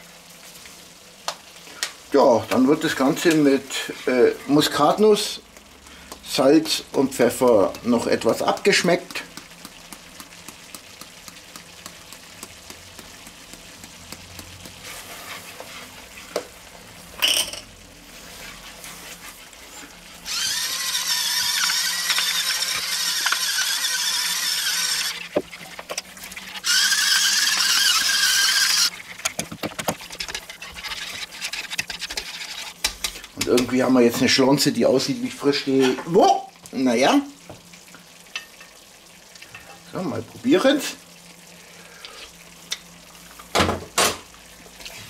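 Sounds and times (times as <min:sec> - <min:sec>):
whisk stirring sauce in a pan: 0:06.7 - 0:16.6, 0:18.1 - 0:33.9
electric spice mill whirring: 0:20.2 - 0:29.9.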